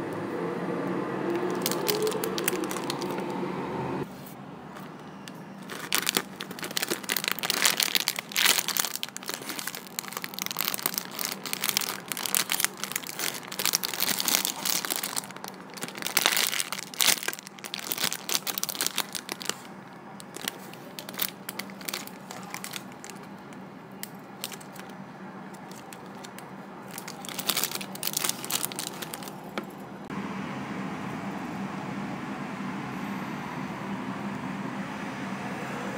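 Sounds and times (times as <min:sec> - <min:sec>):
steady background hum: 0:00.0 - 0:35.9
plastic bags crinkling: 0:01.3 - 0:03.3, 0:04.7 - 0:29.8.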